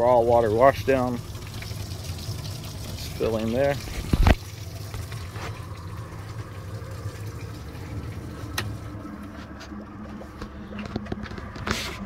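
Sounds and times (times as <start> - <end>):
water rushing into tank: 0.0 - 9.2
low pump hum: 0.0 - 12.0.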